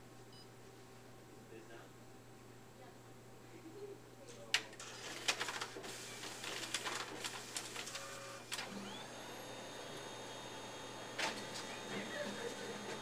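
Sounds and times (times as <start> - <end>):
photocopier low hum: 4.3 - 13.0
photocopier clicking and rattling: 4.6 - 9.0, 11.1 - 13.0.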